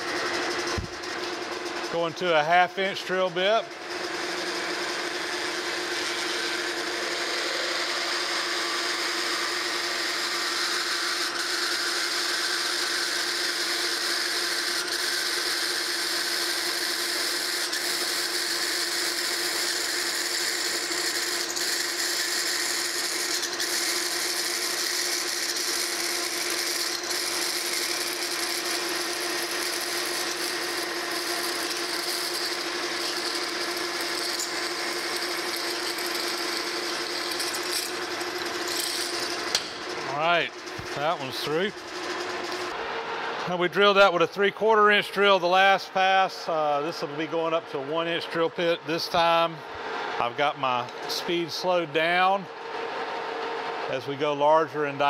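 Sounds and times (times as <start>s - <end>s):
metal lathe humming: 0.0s - 53.9s
drill cutting metal hiss: 4.3s - 40.2s.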